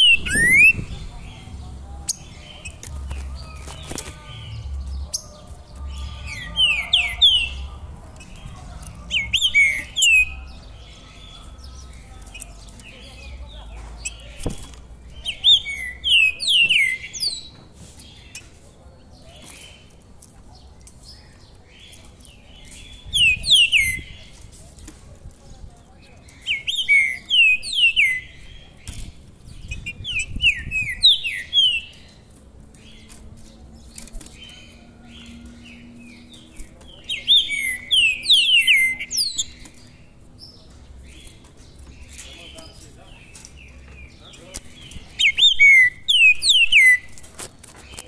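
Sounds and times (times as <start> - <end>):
songbird whistling: 0.0 - 0.9.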